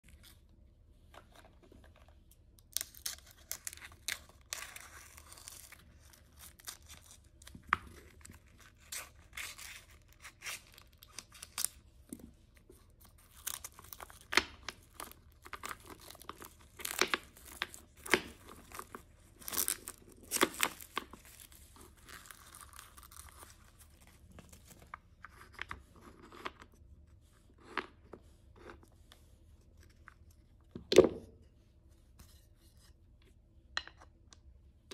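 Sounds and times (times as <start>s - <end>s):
packaging tearing and crinkling: 2.6s - 11.8s, 13.0s - 24.8s.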